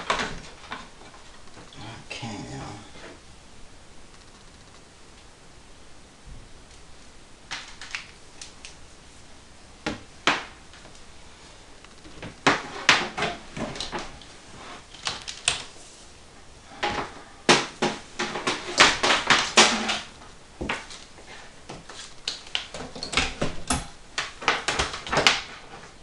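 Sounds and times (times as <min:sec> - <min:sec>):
cables and plugs clattering: 0:11.8 - 0:15.7, 0:16.7 - 0:21.0, 0:21.7 - 0:26.0.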